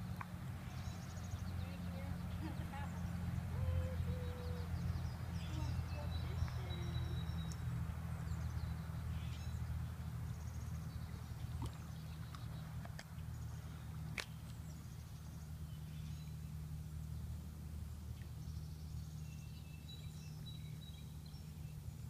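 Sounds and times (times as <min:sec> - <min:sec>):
small birds chirping: 0:00.0 - 0:22.0
steady low hum: 0:00.0 - 0:22.0.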